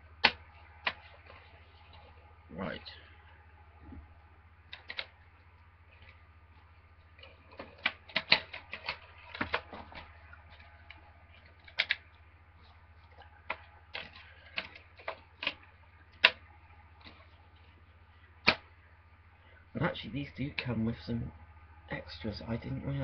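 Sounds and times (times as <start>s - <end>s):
steady low hum: 0.0s - 23.0s
plastic cases clicking and snapping: 4.7s - 5.2s, 7.2s - 12.2s, 13.0s - 17.3s.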